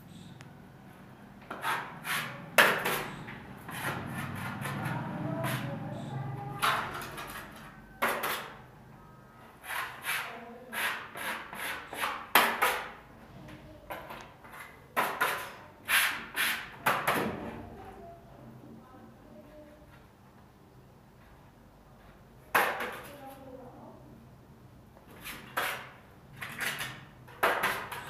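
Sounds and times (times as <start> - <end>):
trowel scraping plaster: 1.5 - 5.7, 6.8 - 8.6, 9.6 - 13.0, 14.4 - 16.8, 25.1 - 28.0.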